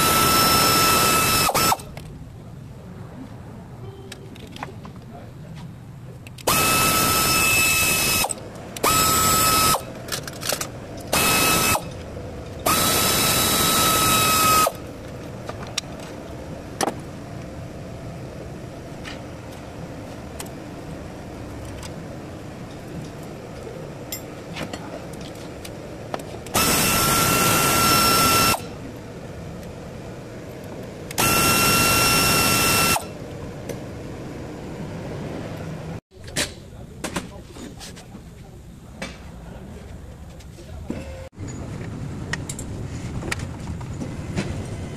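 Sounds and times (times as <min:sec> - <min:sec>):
electric ratchet motor whine: 0:00.0 - 0:01.9, 0:06.4 - 0:10.0, 0:11.1 - 0:12.0, 0:12.6 - 0:14.9, 0:26.5 - 0:28.8, 0:31.1 - 0:33.2.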